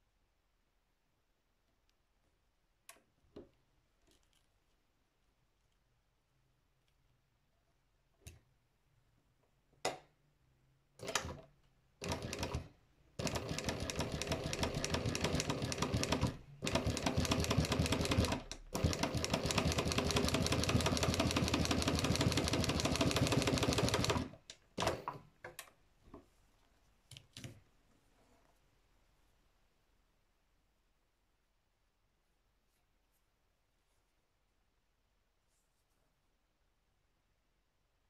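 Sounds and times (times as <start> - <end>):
embroidery machine stitching: 11.0 - 11.4, 12.0 - 25.2.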